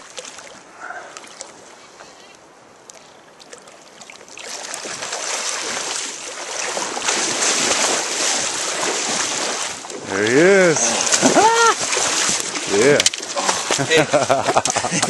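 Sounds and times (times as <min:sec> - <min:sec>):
person wading through water: 0:00.0 - 0:15.0
fish thrashing at water surface: 0:04.4 - 0:13.9.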